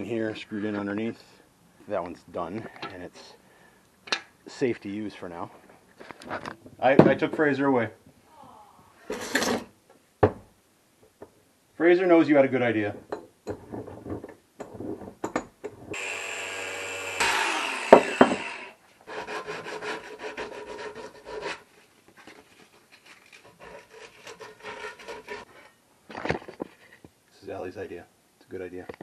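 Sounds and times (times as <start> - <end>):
buzzing hum: 16.0 - 18.7
sharp knocks: 17.9 - 18.6
sandpaper crinkling and rubbing: 21.5 - 25.5.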